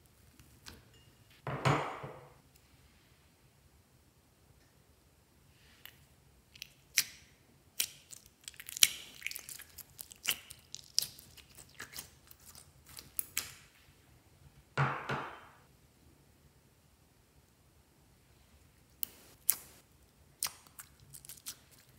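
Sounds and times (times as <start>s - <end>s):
slime crackling and popping: 7.8s - 13.6s
slime squishing: 7.8s - 13.7s, 20.4s - 21.9s.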